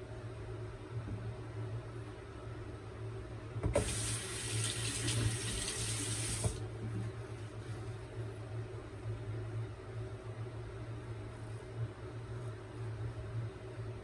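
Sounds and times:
tap running into sink: 3.6 - 6.6.

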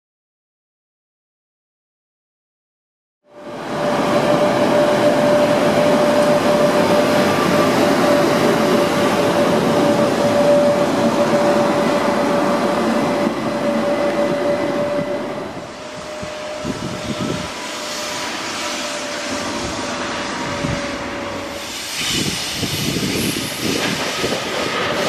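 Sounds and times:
constant whine: 3.3 - 21.5
train wheels rumbling: 3.4 - 25.0.

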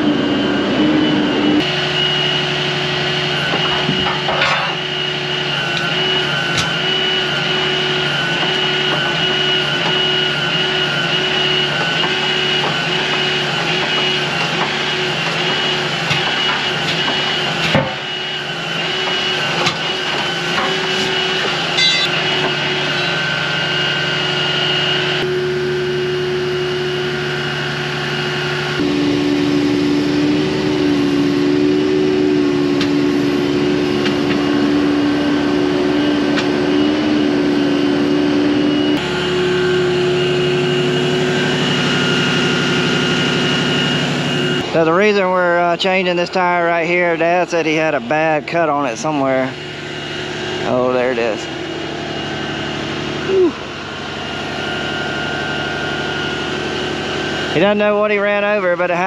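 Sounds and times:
crane whine: 0.0 - 59.0
truck engine humming: 0.0 - 59.0
sharp metal knocks: 21.7 - 23.2.

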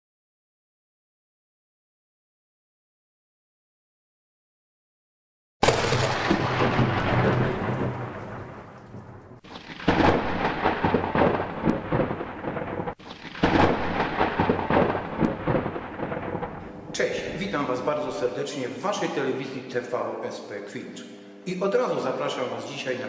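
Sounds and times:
thunder rumbling: 5.6 - 18.2
rain: 5.7 - 16.8.

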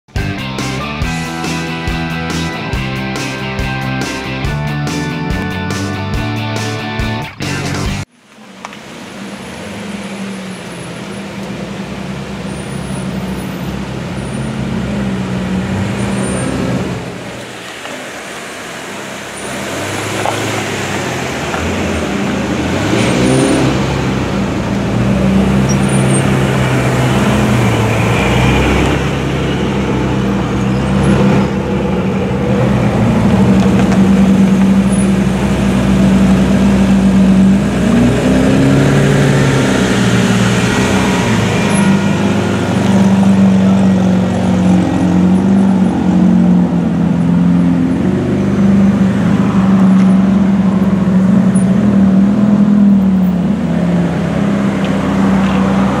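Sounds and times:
car engines idling and revving: 0.0 - 56.0.

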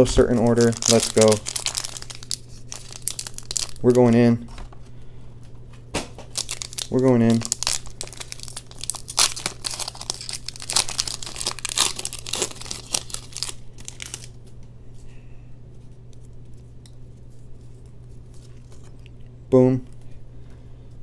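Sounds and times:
foil wrapper tearing and crinkling: 0.3 - 4.2, 6.3 - 14.4.

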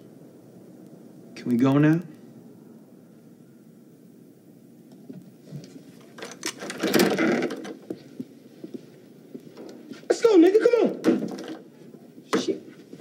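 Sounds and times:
footsteps: 7.4 - 13.0.

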